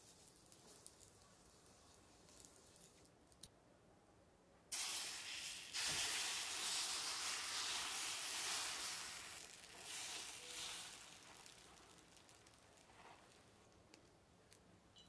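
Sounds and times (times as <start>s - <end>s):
batter sizzling on a griddle: 4.7s - 13.9s.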